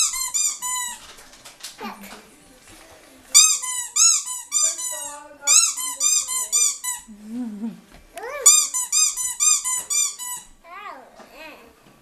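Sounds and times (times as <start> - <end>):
rubber squeaky toy squeaking: 0.0 - 1.0, 3.4 - 7.1, 8.2 - 10.6.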